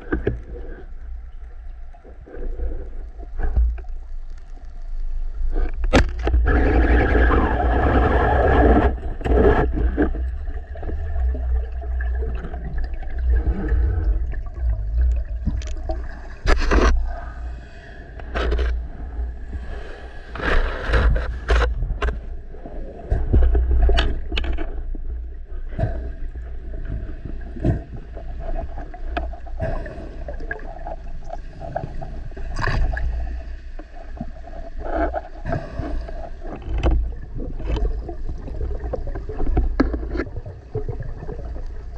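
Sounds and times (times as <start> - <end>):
knocks and scrapes underwater: 0.0 - 41.9
low underwater rumble: 0.0 - 41.9.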